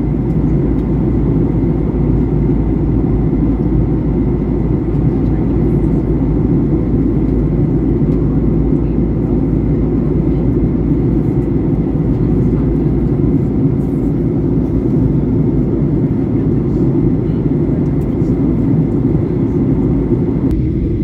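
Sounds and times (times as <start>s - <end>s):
airplane cabin roar: 0.0s - 21.0s.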